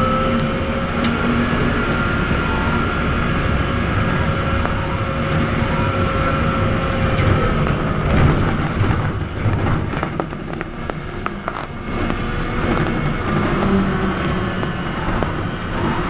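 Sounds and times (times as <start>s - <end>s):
road and body noise: 0.3s - 16.0s
rattles and knocks: 6.9s - 16.0s.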